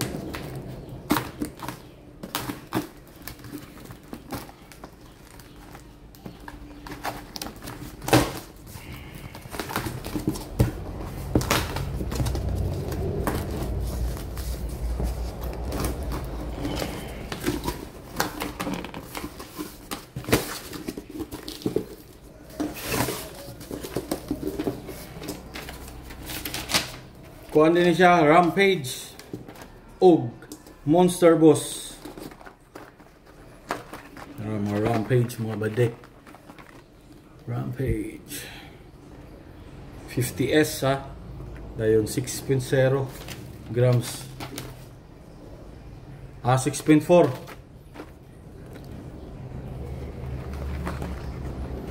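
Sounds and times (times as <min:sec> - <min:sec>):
plastic packaging clicks and crinkles: 0:00.0 - 0:27.6, 0:31.7 - 0:37.5, 0:46.6 - 0:51.9
low rumbling handling noise: 0:09.6 - 0:26.5, 0:47.2 - 0:51.9.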